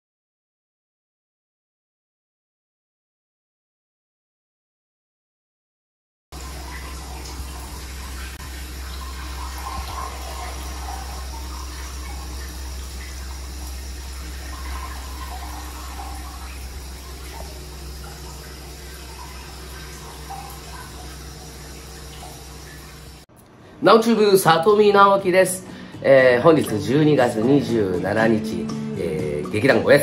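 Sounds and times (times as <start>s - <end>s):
water splashing into a bath: 6.4s - 23.3s
low hum: 6.4s - 23.8s.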